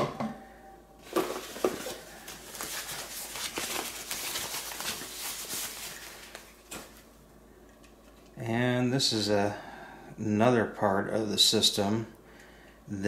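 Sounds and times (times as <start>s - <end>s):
packing wrap rustling: 1.0s - 7.2s.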